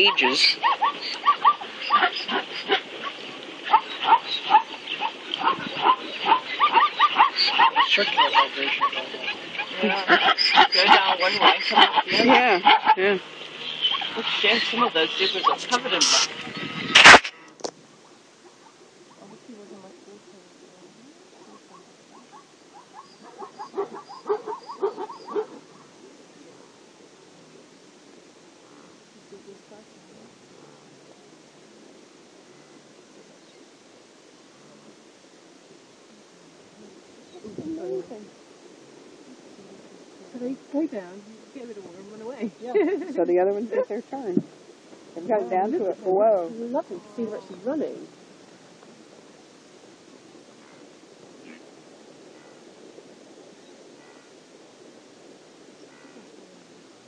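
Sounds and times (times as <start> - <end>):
herd of wildebeest grunting: 0.0 - 13.0
animals barking calls: 0.0 - 19.5, 21.0 - 26.9, 50.6 - 54.4, 55.8 - 56.4.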